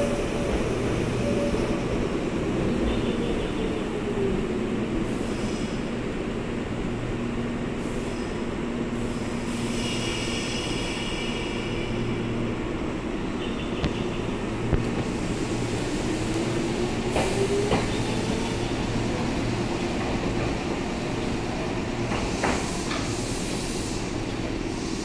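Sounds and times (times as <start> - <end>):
train pulling away: 14.9 - 25.0.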